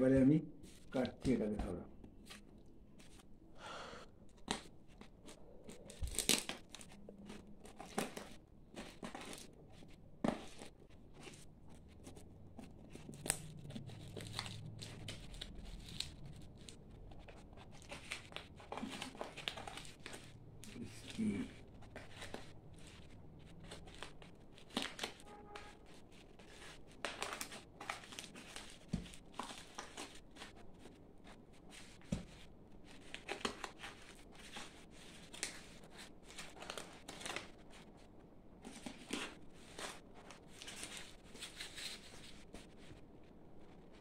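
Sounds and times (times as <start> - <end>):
plastic wrap crinkling and tearing: 4.3 - 44.0.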